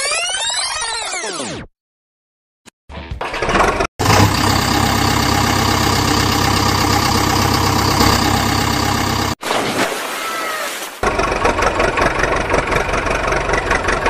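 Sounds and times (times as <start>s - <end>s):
vehicle engine running: 3.6s - 9.4s, 11.0s - 14.0s.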